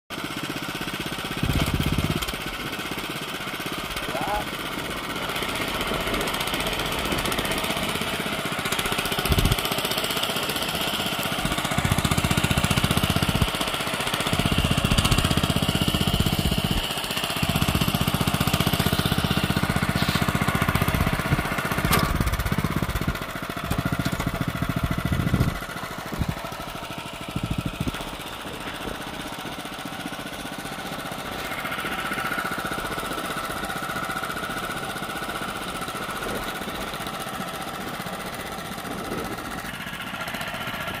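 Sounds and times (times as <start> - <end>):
tiller engine running: 0.1 - 41.0
tines digging through soil: 11.4 - 22.8.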